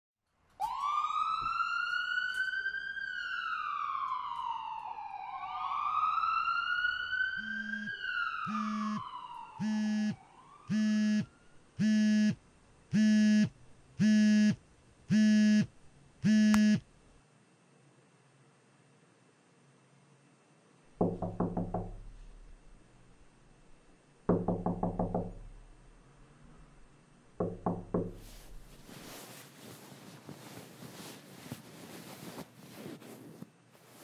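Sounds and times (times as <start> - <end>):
siren wailing: 0.6 - 12.3
phone alarm beeps: 7.4 - 7.9, 8.5 - 9.0, 9.6 - 12.4.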